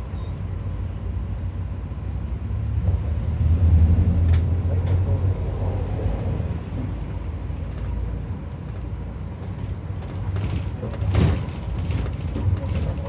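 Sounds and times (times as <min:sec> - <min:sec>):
minibus engine and tyre noise: 0:00.0 - 0:13.0.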